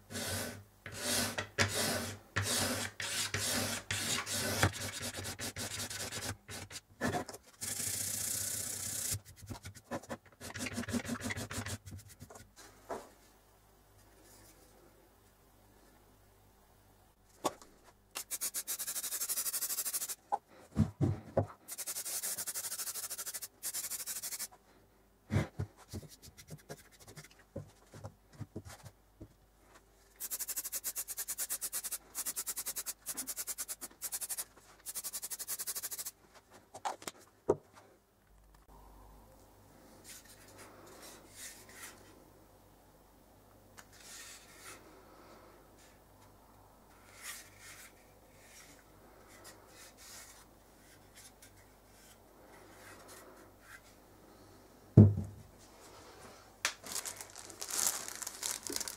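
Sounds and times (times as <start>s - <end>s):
knocks and thumps of handling: 20.7s - 21.6s, 55.0s - 55.5s.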